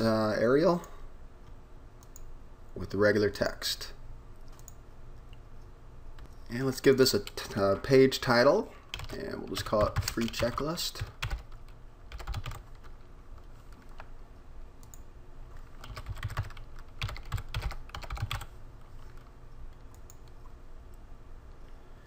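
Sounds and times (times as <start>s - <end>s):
computer keyboard typing: 8.9s - 14.1s, 15.6s - 18.5s.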